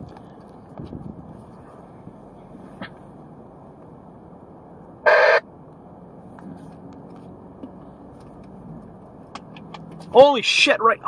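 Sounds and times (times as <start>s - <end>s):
wind rushing past microphone: 0.0s - 1.6s.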